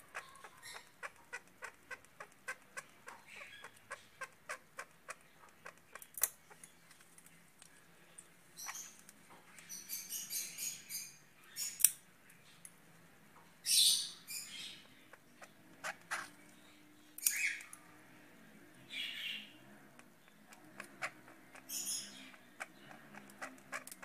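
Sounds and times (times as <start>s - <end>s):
budgerigar chirping: 0.0s - 5.8s, 13.6s - 16.3s, 18.9s - 19.5s, 20.5s - 24.0s.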